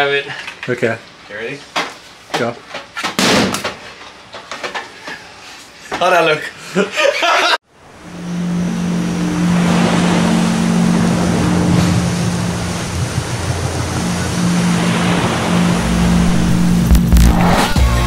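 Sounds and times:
strong low hum: 0:07.8 - 0:17.8
waves: 0:07.8 - 0:17.8
wind rushing: 0:08.2 - 0:17.8.

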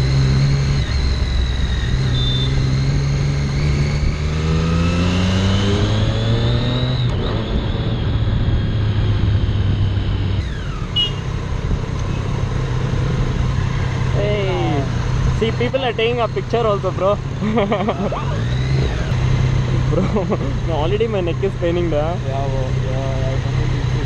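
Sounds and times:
motorcycle engine revving: 0:00.0 - 0:24.0.

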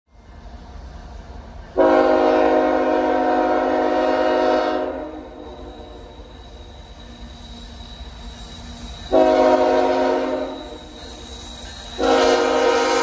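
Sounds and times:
locomotive air horn: 0:01.8 - 0:06.1, 0:09.1 - 0:10.8, 0:12.0 - 0:13.0.

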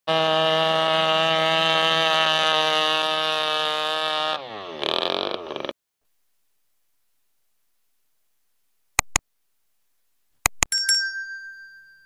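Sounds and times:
high-revving engine whine: 0:00.1 - 0:05.7.

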